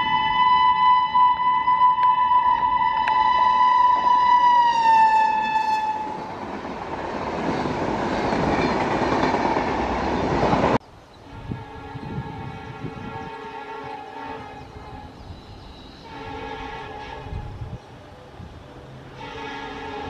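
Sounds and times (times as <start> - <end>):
locomotive horn blowing: 0.0 - 6.3, 11.2 - 15.2, 16.0 - 17.6, 19.1 - 20.0
train coaches rushing and rattling: 3.8 - 20.0.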